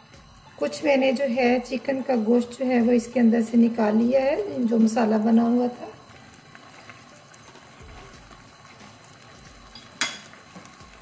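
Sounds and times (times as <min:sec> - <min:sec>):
utensil clinking on pot: 0:09.7 - 0:10.4.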